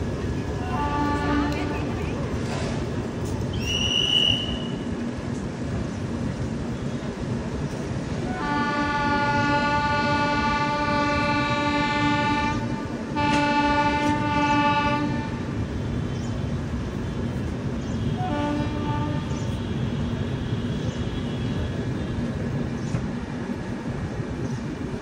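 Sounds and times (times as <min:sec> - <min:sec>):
moving train rumble: 0:00.0 - 0:25.0
train horn blasts: 0:00.7 - 0:01.8, 0:08.3 - 0:15.5, 0:18.0 - 0:21.7.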